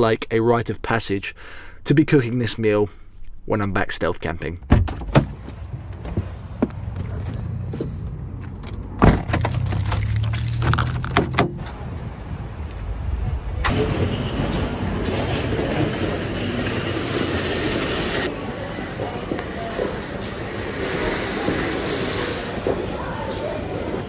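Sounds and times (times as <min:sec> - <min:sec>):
van door shutting thud: 0:09.0 - 0:09.6
keys jangling: 0:09.2 - 0:11.3.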